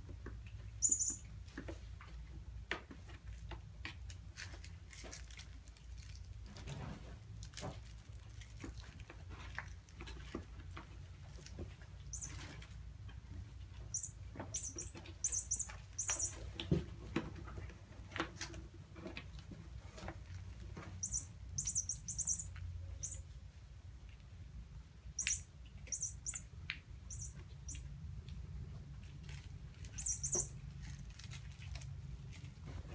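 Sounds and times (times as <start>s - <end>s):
low steady hum: 0.0s - 32.9s.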